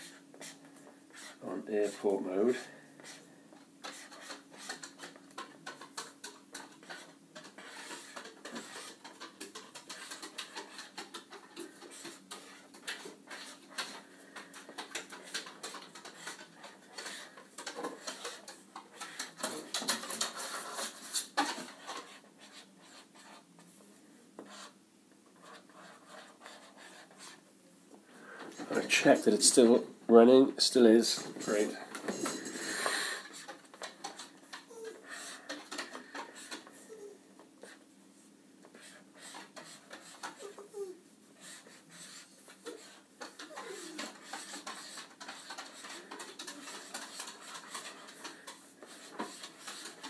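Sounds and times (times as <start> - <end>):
marker scratching on paper: 0.0 - 3.2, 3.8 - 14.0, 14.7 - 23.5, 24.4 - 24.8, 25.4 - 27.4, 35.1 - 36.7, 37.6 - 37.8, 38.7 - 40.6, 41.4 - 50.0.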